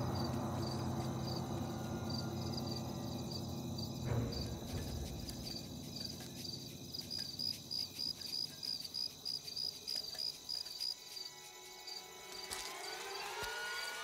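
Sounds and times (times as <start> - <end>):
low rumble: 0.0 - 8.0
crickets chirping: 0.0 - 14.0.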